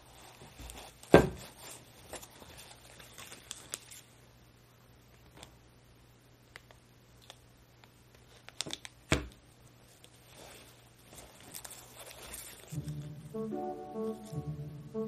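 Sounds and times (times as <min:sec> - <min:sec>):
plastic blister pack crinkling: 0:00.1 - 0:04.1, 0:08.1 - 0:09.2, 0:10.0 - 0:12.8.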